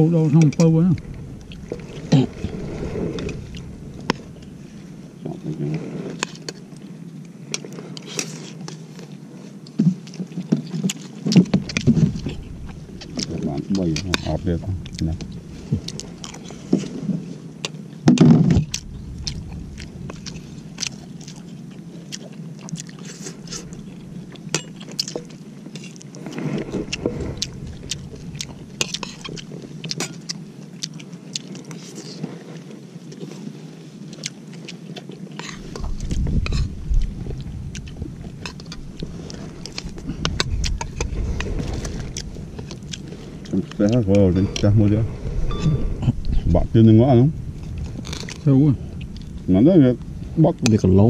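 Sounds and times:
low rumble: 0.0 - 7.0, 11.4 - 30.3, 35.4 - 51.0
chewing: 0.3 - 46.4, 47.5 - 51.0.

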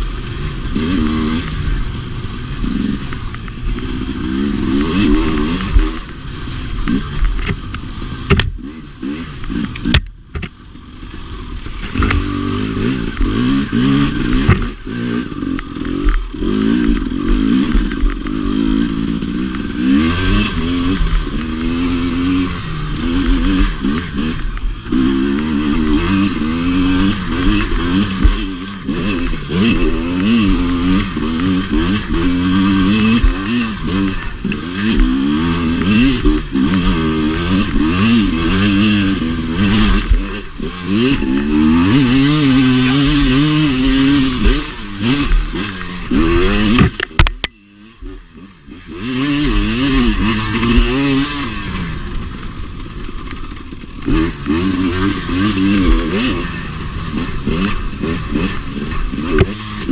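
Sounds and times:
two-stroke motorcycle engine revving: 0.0 - 59.9.

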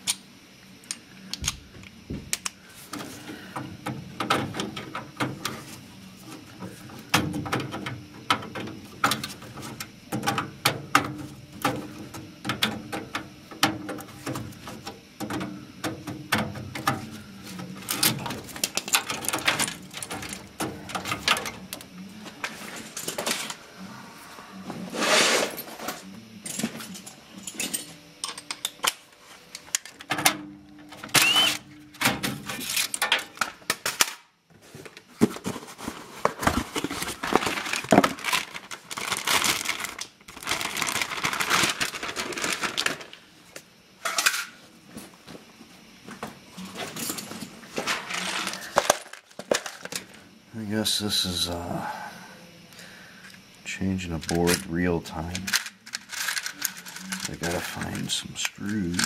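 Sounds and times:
clicks and rattles of wires: 7.1 - 21.9.

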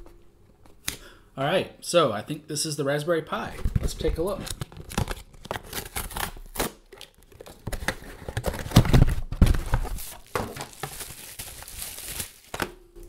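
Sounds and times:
cardboard rustling and tearing: 3.8 - 12.6.

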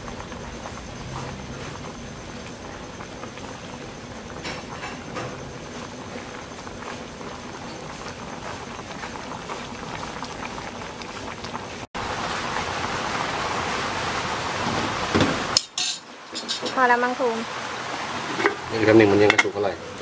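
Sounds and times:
pot boiling and bubbling: 0.0 - 20.0.

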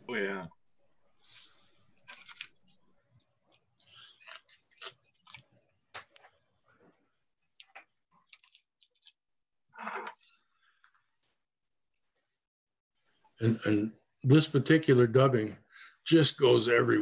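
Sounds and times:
faint clicks and rustles: 1.3 - 11.4.

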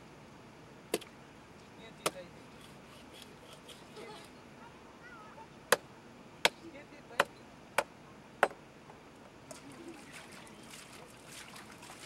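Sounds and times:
water trickling and splashing: 9.4 - 12.0.

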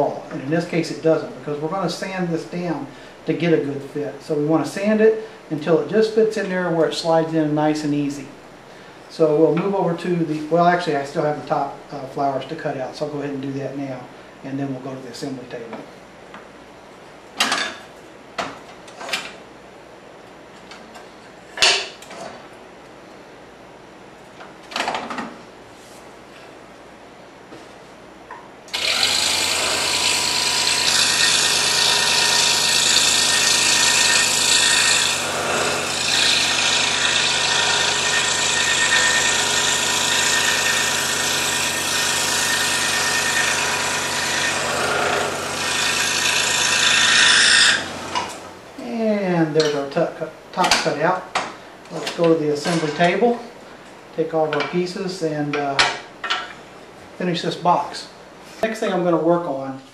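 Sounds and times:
scroll saw cutting wood: 28.7 - 48.4.

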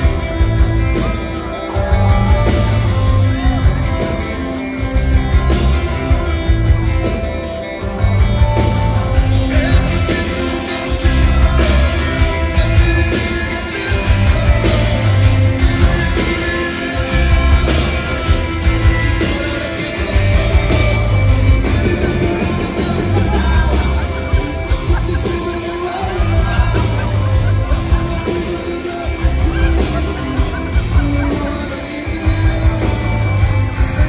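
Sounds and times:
bass: 0.0 - 34.0
drums: 0.0 - 34.0
electric guitars: 0.0 - 34.0
person singing: 0.0 - 34.0.

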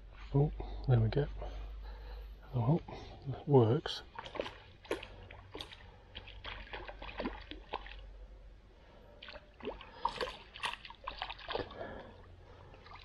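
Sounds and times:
fish splashing in water: 4.1 - 8.1, 9.2 - 12.1.

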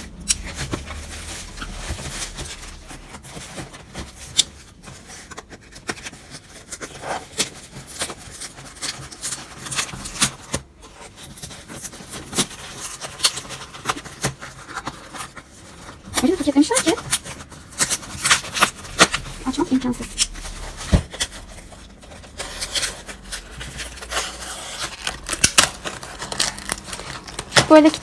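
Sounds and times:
bubble wrap crinkling: 0.0 - 28.0.

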